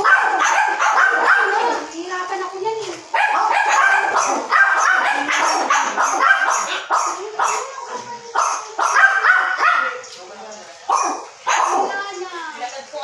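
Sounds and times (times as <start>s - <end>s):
dog barking: 0.0s - 1.8s, 3.1s - 10.0s, 10.9s - 12.0s.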